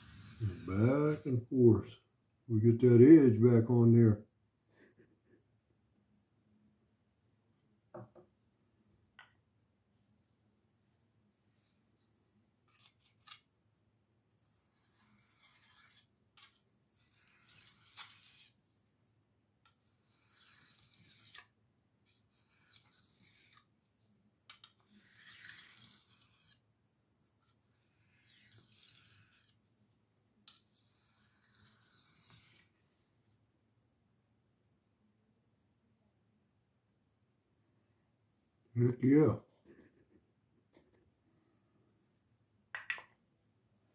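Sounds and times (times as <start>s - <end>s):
knife scraping on sharpening stone: 12.7s - 13.4s, 14.7s - 18.6s, 19.8s - 21.5s, 22.1s - 23.7s, 24.5s - 26.6s, 27.7s - 29.6s, 30.5s - 32.7s.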